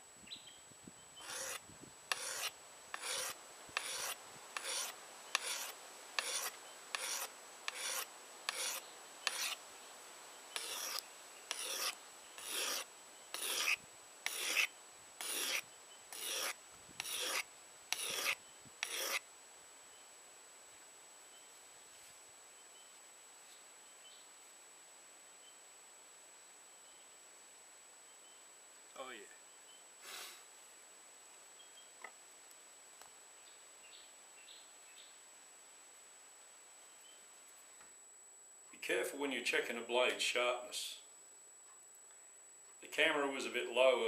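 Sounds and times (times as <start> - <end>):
whetstone scraping steel blade: 1.2 - 9.6, 10.6 - 19.2.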